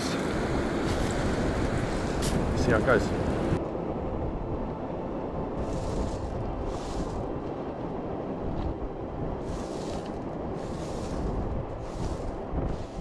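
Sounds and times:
wind rumble on microphone: 0:00.0 - 0:13.0
hissing swishes: 0:05.6 - 0:07.3, 0:09.4 - 0:13.0.

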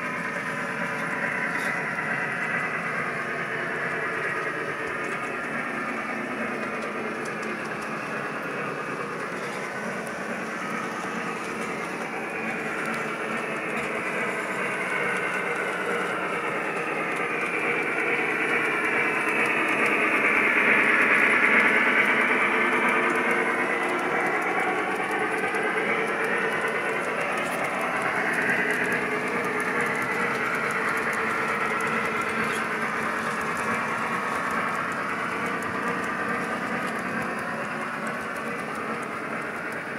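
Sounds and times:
model train clattering on track: 0:00.0 - 0:39.9.

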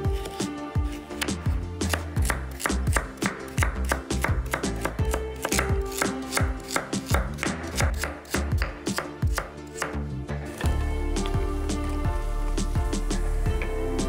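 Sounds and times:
soft background music: 0:00.0 - 0:14.0
knife chopping on cutting board: 0:00.1 - 0:10.0.

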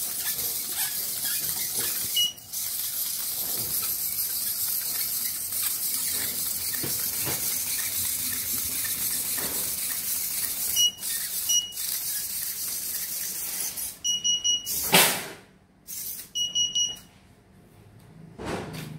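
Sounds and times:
short high electronic beeps: 0:10.6 - 0:12.0, 0:14.0 - 0:14.8, 0:16.3 - 0:17.0.

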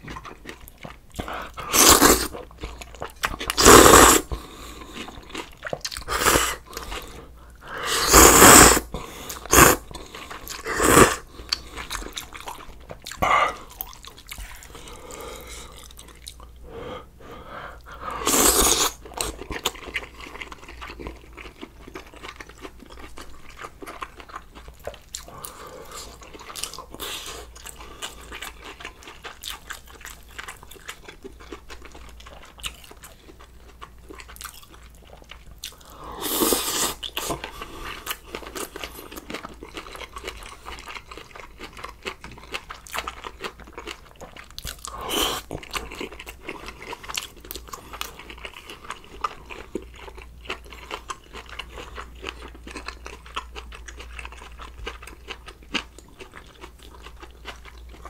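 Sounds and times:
person chewing: 0:00.0 - 0:16.7, 0:17.7 - 0:58.0
person slurping noodles: 0:01.2 - 0:02.3, 0:03.5 - 0:04.3, 0:06.0 - 0:07.1, 0:07.7 - 0:09.9, 0:10.5 - 0:11.3, 0:18.0 - 0:19.3, 0:36.1 - 0:38.0, 0:44.9 - 0:45.6.

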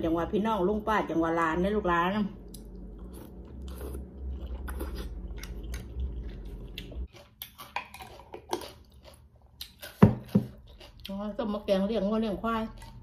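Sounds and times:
wet chewing: 0:02.4 - 0:11.6, 0:12.6 - 0:13.0.

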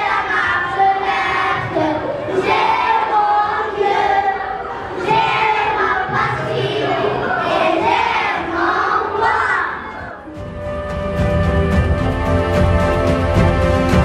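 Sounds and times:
children chanting: 0:00.0 - 0:10.3.

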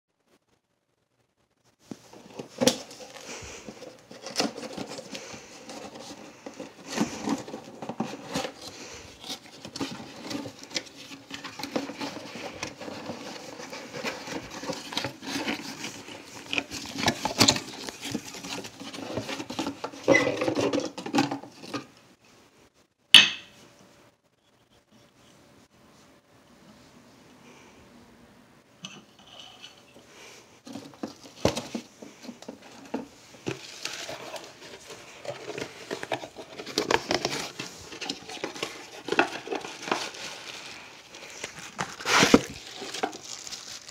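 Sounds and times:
cardboard rustling and scraping: 0:01.8 - 0:21.9, 0:29.1 - 0:43.9.

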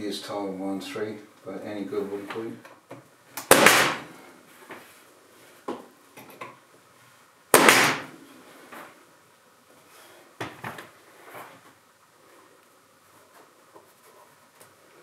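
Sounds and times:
nail gun firing: 0:03.4 - 0:04.1, 0:07.5 - 0:08.1.

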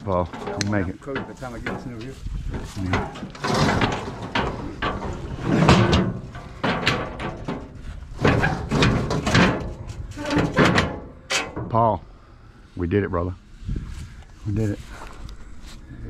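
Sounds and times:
metal gate clanking shut: 0:00.0 - 0:02.1, 0:02.8 - 0:12.0.

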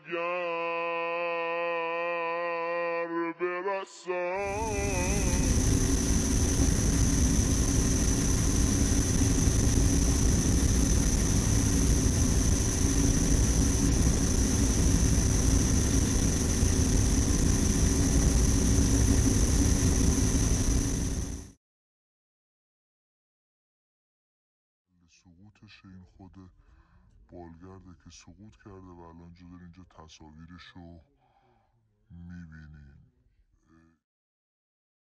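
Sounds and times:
aircraft engine drone: 0:04.4 - 0:21.5.

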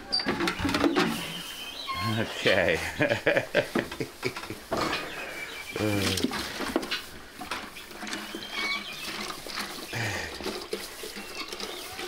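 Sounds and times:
liquid pouring into bucket: 0:05.9 - 0:12.0.

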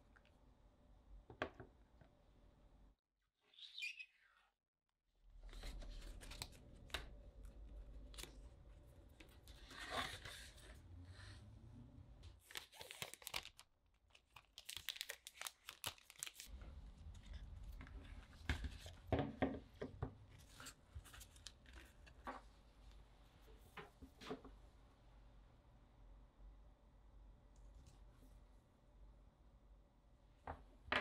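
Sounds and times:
paper rustling and tearing: 0:12.4 - 0:13.6, 0:14.2 - 0:16.5.

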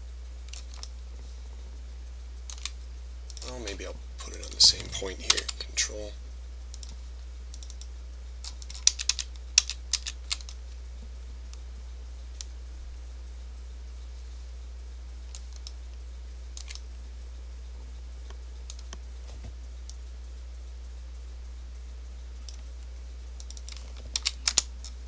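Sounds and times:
steady low hum: 0:00.0 - 0:25.0
keyboard and mouse clicking: 0:02.5 - 0:03.6, 0:06.7 - 0:10.6, 0:16.6 - 0:16.8, 0:23.4 - 0:25.0.

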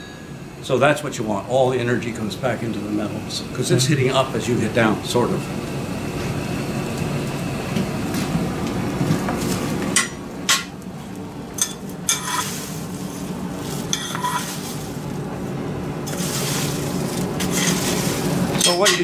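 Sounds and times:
metal tongs clinking and scraping: 0:11.6 - 0:12.7, 0:13.8 - 0:14.8, 0:16.1 - 0:19.0.

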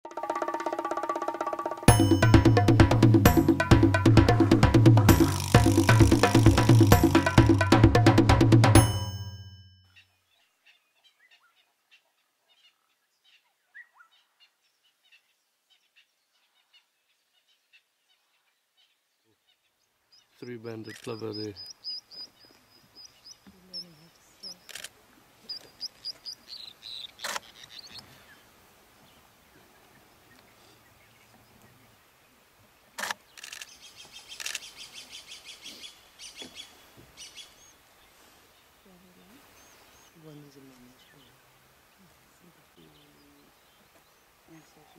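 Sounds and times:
short sharp sound: 0:01.9 - 0:09.5
small birds chirping: 0:09.9 - 0:44.9.

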